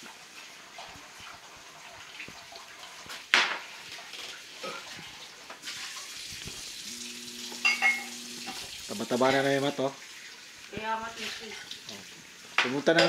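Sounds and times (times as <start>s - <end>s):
glassware clinking on table: 7.5s - 8.6s.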